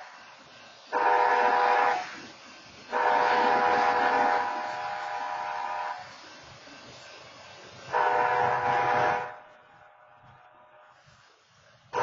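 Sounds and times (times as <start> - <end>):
train horn blasts: 0.9 - 2.2, 2.9 - 6.1, 7.9 - 9.5.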